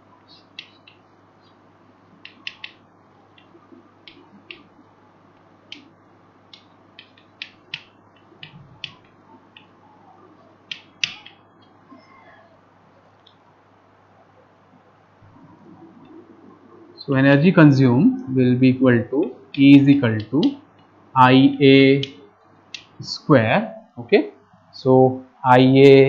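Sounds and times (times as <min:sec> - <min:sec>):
chalk tapping and scratching: 0:00.3 - 0:01.0.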